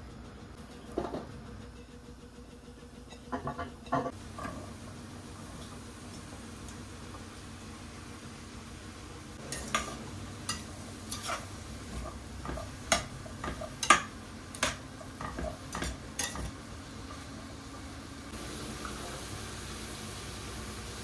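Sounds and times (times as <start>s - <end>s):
metal utensil scraping frying pan: 9.4s - 16.6s.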